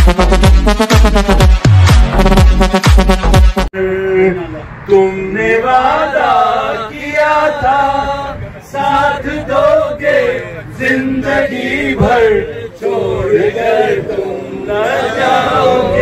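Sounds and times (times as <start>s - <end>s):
loud electronic music: 0.0s - 3.7s.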